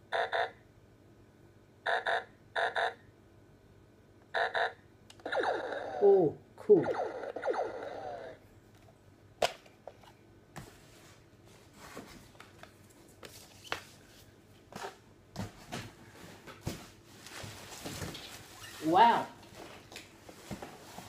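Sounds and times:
wavering pitched sound: 5.3 - 8.4.

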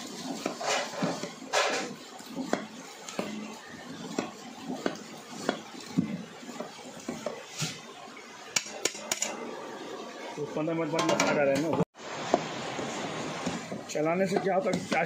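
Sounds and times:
metal ladle clanking against pot: 8.5 - 9.4.

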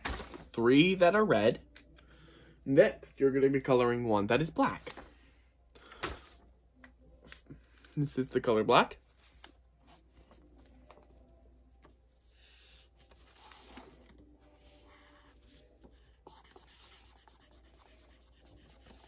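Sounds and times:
marker scratching on paper: 12.2 - 19.0.

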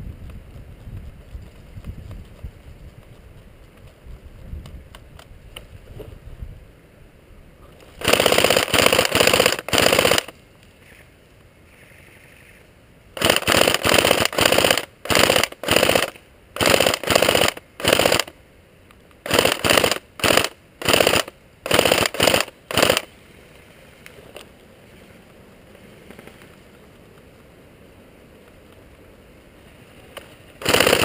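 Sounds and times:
airsoft rifle full-auto bursts: 8.0 - 10.3, 13.2 - 18.4, 19.2 - 23.1, 30.6 - 31.0.

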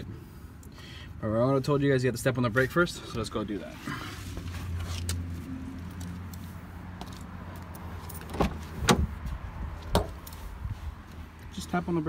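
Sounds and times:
car door clacks: 8.2 - 9.2, 9.8 - 10.2.

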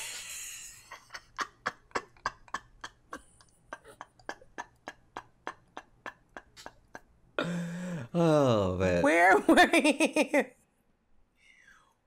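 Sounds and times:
man laughing breathily: 0.5 - 8.2.

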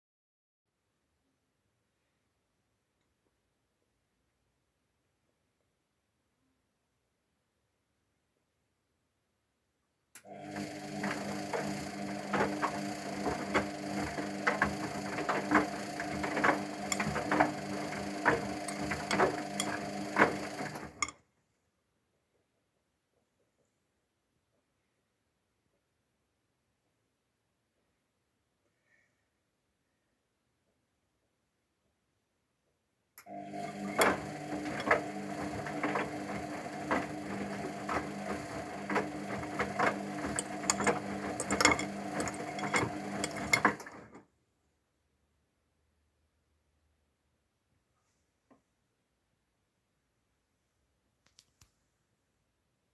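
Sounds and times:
washing machine motor hum: 10.2 - 21.1, 33.2 - 44.2.

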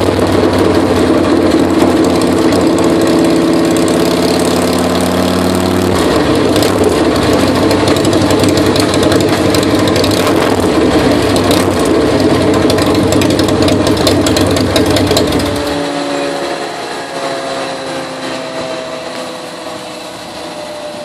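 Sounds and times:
motorcycle engine revving hard: 0.0 - 21.0
roller and wheel spinning whine: 0.0 - 21.0.

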